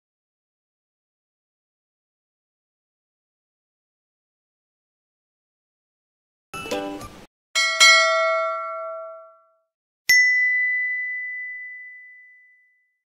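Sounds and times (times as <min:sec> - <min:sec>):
struck chimes ringing: 0:07.6 - 0:09.5
high ding: 0:07.6 - 0:13.0.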